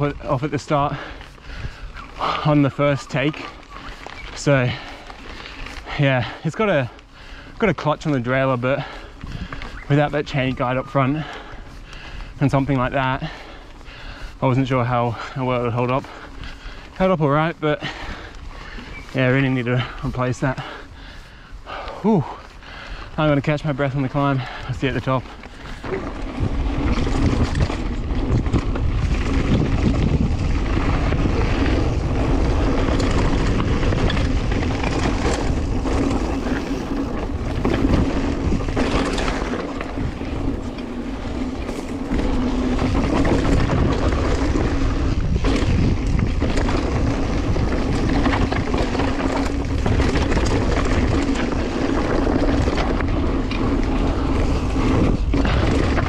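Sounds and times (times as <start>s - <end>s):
bike tyre rumble: 0.0s - 56.0s
wind rushing over microphone: 8.2s - 13.6s, 15.0s - 56.0s
bike knocks and rattles: 24.1s - 56.0s.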